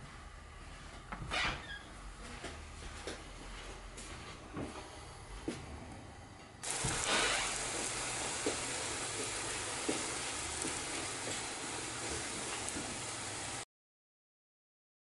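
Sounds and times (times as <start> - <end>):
pancake sizzling in a frying pan: 6.6 - 13.6.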